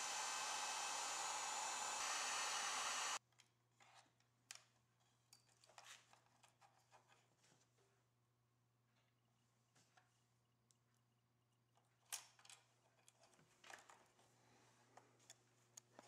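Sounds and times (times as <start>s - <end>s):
heat gun blowing: 0.0s - 3.2s.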